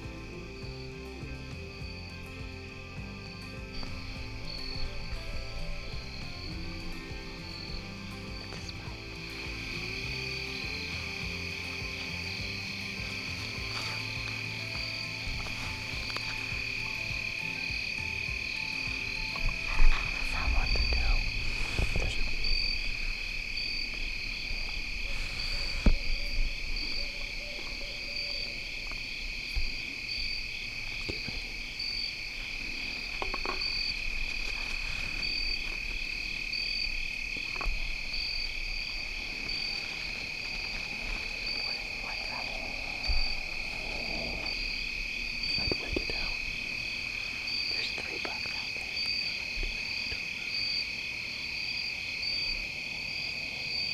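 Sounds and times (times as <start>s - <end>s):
high pulsed chirping: 0.0s - 30.8s
crickets trilling: 0.0s - 53.9s.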